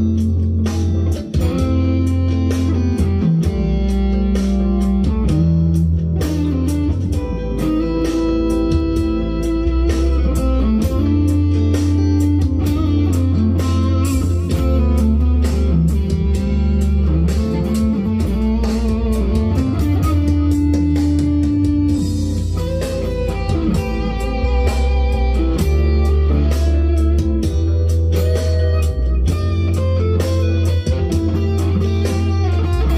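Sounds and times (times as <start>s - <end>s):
backing track with bass and drums: 0.0s - 32.9s
electric guitar lead: 0.0s - 32.9s.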